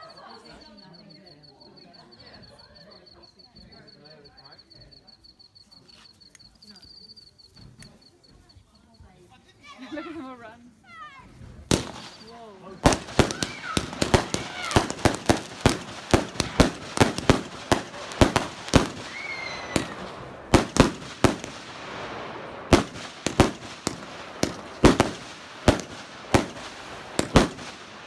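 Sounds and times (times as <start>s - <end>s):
fireworks bangs and pops: 11.4s - 28.0s.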